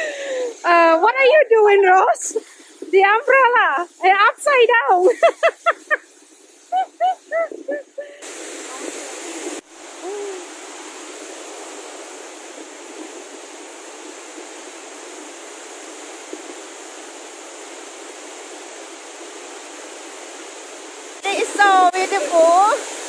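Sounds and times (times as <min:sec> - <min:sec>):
waterfall rushing: 0:05.2 - 0:23.0.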